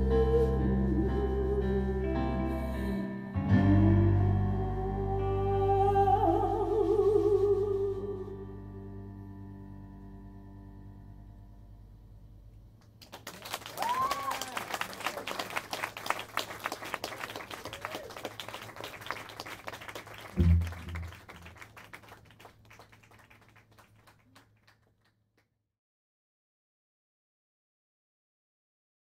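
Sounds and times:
audience applause: 13.0 - 24.9
cheers: 13.1 - 21.7
low thump: 20.4 - 21.1
band's final held chord: 20.4 - 21.3.

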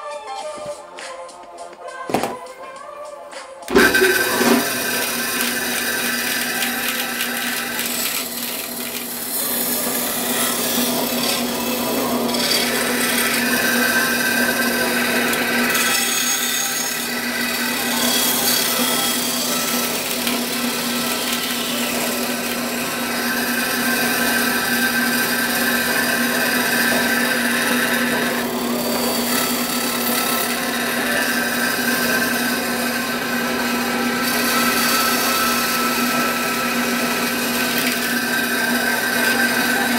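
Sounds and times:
bandsaw cutting: 3.7 - 39.9.

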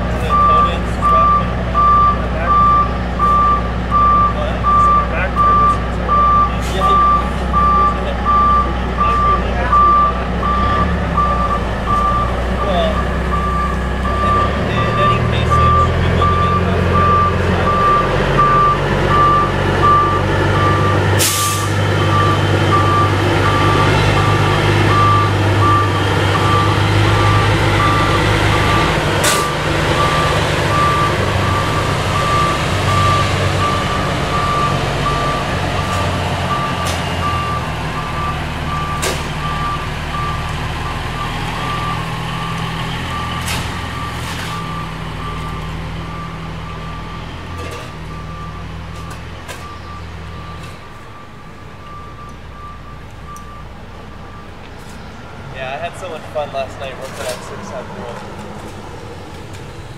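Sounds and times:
diesel truck engine running: 0.0 - 59.9
back-up alarm beeping: 0.2 - 42.2, 43.0 - 54.6
air brakes hissing: 21.2 - 21.8.

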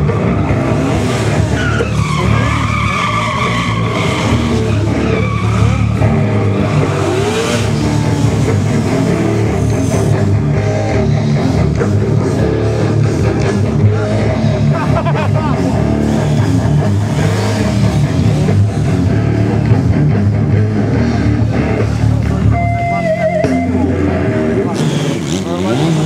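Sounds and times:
motorcycle engine revving: 0.0 - 26.0
rock music: 0.0 - 26.0
tyres squealing: 0.1 - 10.2.

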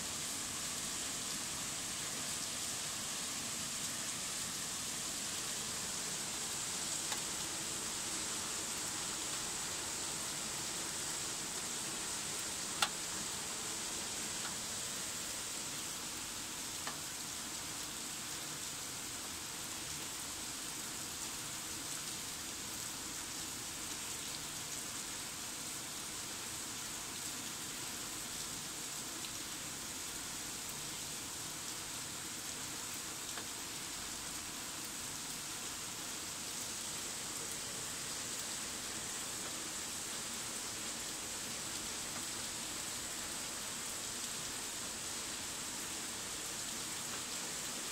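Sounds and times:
rain on paving: 0.0 - 47.9
faint ticks: 7.1 - 7.3, 12.8 - 13.0, 14.4 - 14.6, 16.8 - 17.0, 33.3 - 33.5.

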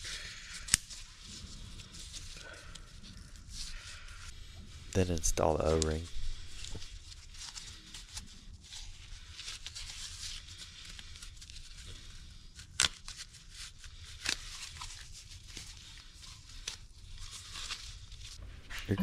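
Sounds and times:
gloves rubbing rubber and metal: 0.0 - 11.1
steady low hum: 18.4 - 19.0.

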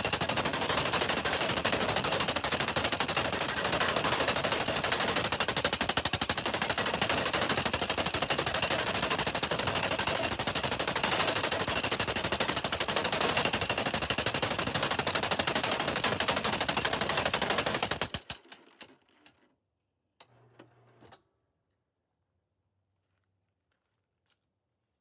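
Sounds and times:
jackhammer pounding wood: 0.0 - 18.4.

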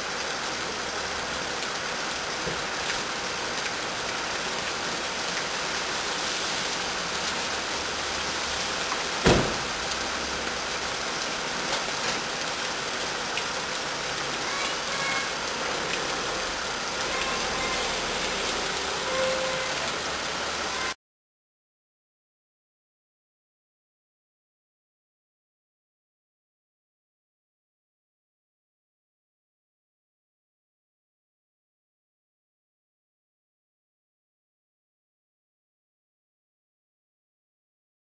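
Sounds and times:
rain hiss: 0.0 - 21.0.

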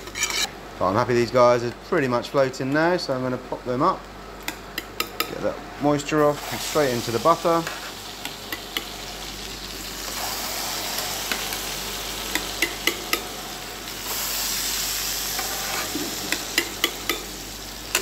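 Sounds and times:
butter sizzling in a frying pan: 6.4 - 18.0.

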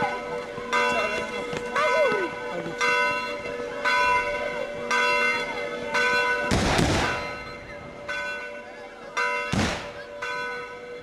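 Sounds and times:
church bell tolling: 0.0 - 11.0
gunshot blast: 6.5 - 7.2, 9.5 - 10.0.

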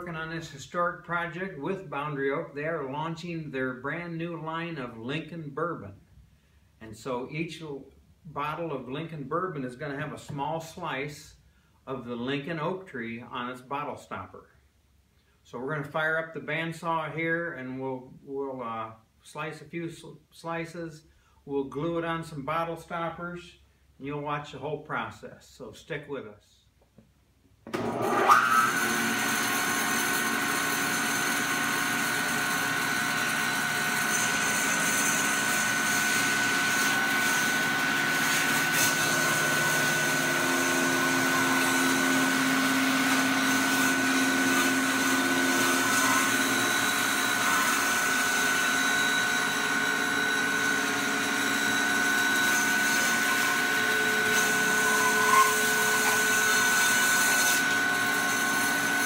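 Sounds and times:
bandsaw cutting wood: 27.7 - 59.0.

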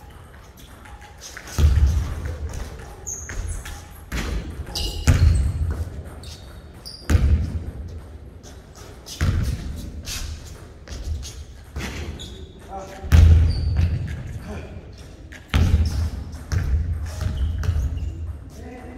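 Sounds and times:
sneaker squeaks: 0.0 - 18.8
basketball bouncing on hardwood: 3.3 - 6.3, 7.0 - 8.1, 9.2 - 9.7, 13.0 - 14.3, 15.5 - 18.2.

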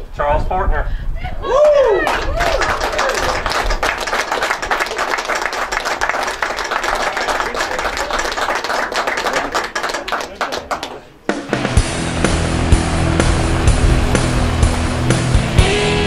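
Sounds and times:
crowd clapping: 1.6 - 11.6.

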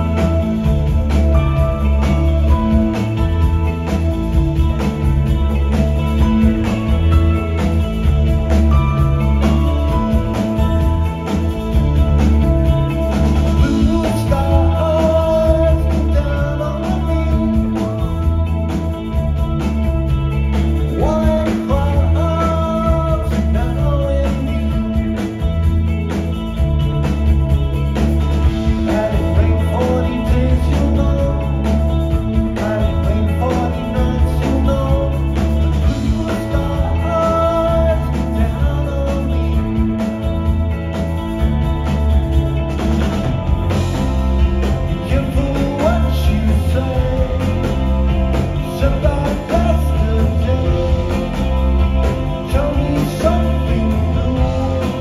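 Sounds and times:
bass: 0.0 - 55.0
drums: 0.0 - 55.0
electric guitars: 0.0 - 55.0
keyboards: 0.0 - 55.0
person singing: 13.6 - 18.4, 20.9 - 25.1, 28.8 - 31.8, 32.4 - 39.9, 45.0 - 48.0, 48.6 - 51.8, 52.4 - 55.0.

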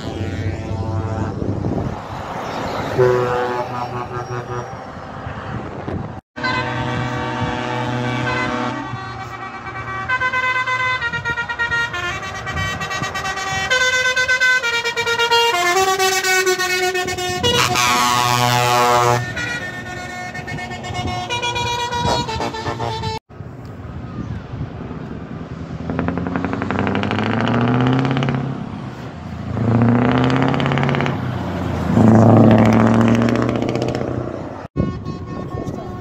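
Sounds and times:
truck air horns blowing: 0.0 - 1.9, 2.8 - 5.7, 6.4 - 23.2, 27.2 - 36.0
diesel engine accelerating: 24.4 - 34.8.

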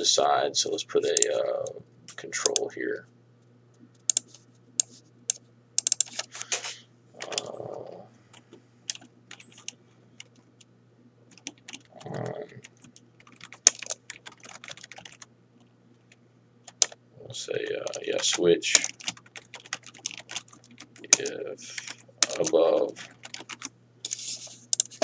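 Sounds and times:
faint steady hum: 0.0 - 25.0
typing on computer keyboard: 4.1 - 5.0, 5.8 - 6.3, 8.9 - 10.4, 11.3 - 11.9, 12.6 - 15.3, 16.7 - 17.0, 17.8 - 25.0.

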